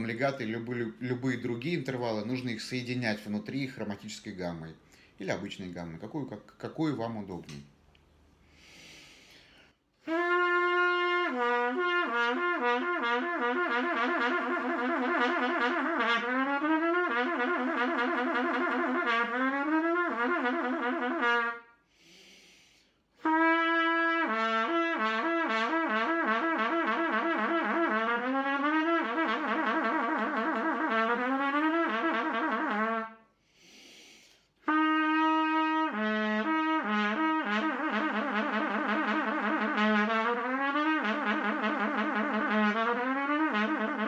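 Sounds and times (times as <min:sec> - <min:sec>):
trumpet playing lip slurs: 0:10.0 - 0:21.8, 0:23.2 - 0:33.3, 0:34.3 - 0:44.0.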